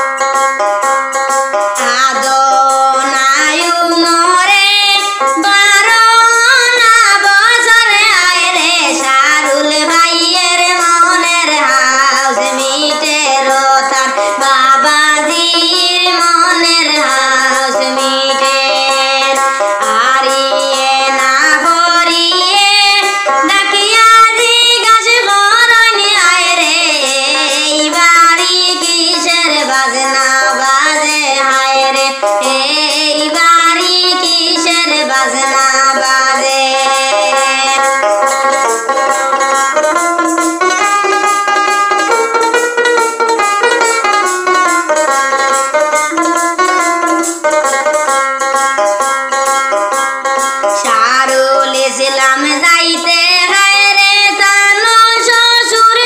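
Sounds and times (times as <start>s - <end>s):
instrumental accompaniment: 0.0s - 56.0s
woman singing: 1.7s - 40.1s, 50.7s - 56.0s.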